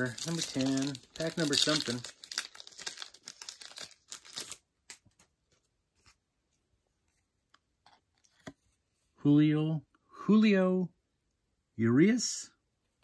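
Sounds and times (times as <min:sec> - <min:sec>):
plastic wrapper tearing and crinkling: 0:00.0 - 0:05.2
cards ticking and rustling: 0:00.0 - 0:06.1.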